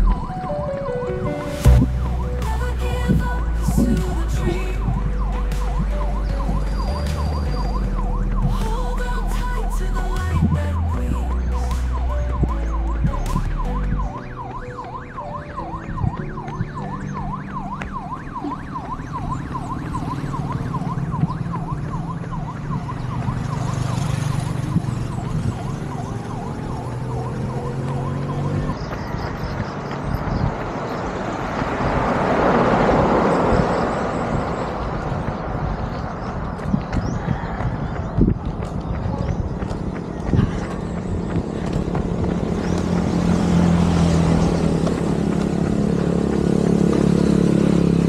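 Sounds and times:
siren yelping: 0.0 - 2.4, 4.5 - 28.8
deep bass music: 0.0 - 23.6, 33.5 - 48.0
road noise: 0.0 - 48.0.

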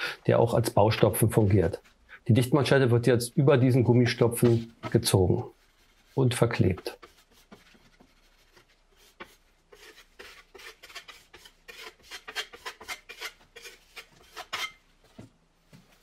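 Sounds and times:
trowel scraping paste: 3.7 - 14.8.

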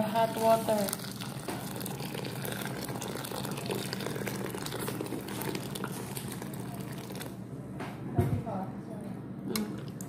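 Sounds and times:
water pouring into a bowl: 0.0 - 7.4.

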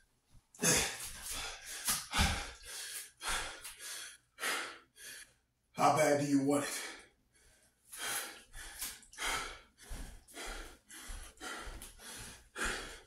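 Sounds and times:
man breathing hard: 0.6 - 5.4, 6.6 - 13.0.

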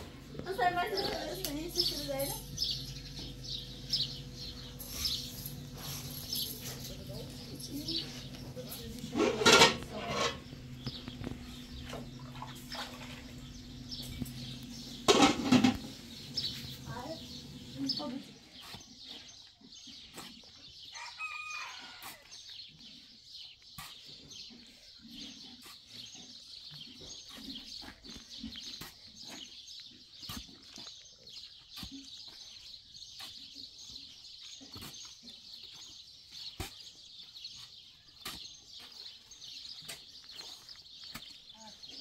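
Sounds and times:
chickens clucking: 6.4 - 17.7.

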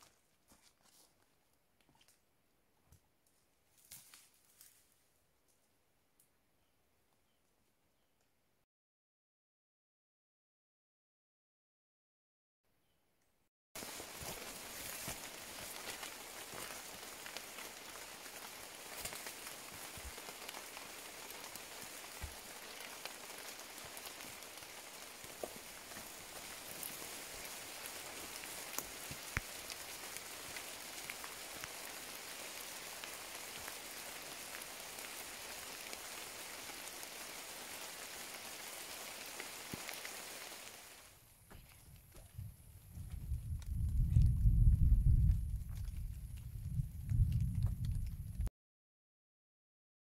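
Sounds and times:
rain drops ticking: 13.8 - 41.2, 43.2 - 48.5
rain on foliage: 13.8 - 41.6, 43.2 - 48.5.

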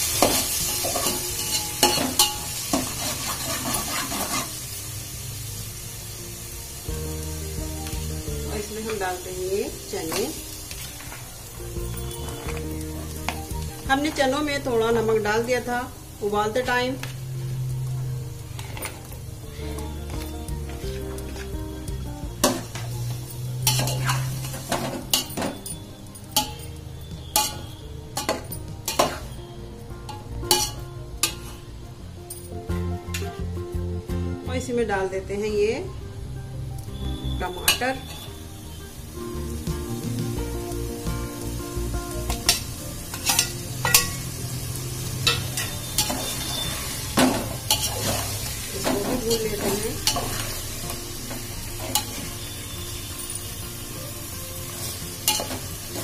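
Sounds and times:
frying in oil: 0.0 - 32.5, 36.7 - 56.0
ladle scraping and clinking pot: 0.2 - 4.6, 23.6 - 25.7, 42.4 - 44.2, 47.2 - 50.6.

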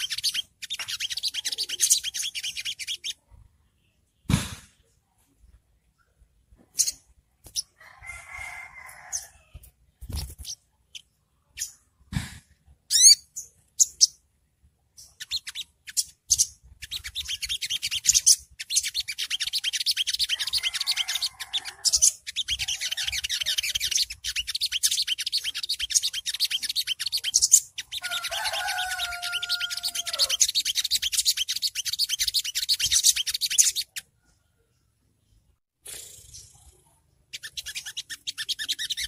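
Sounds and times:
bird chattering trill: 0.0 - 3.2, 15.0 - 34.1, 35.9 - 39.0.

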